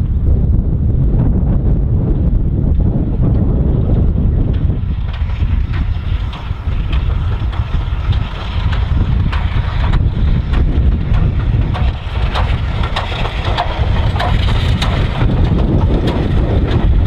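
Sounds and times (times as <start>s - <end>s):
wind rumble on microphone: 0.0s - 17.0s
steam locomotive knocks: 4.4s - 17.0s.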